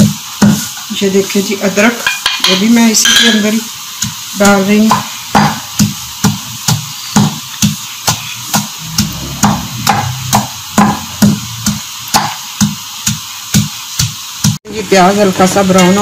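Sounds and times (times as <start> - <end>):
wooden pestle pounding in mortar: 4.9 - 14.6.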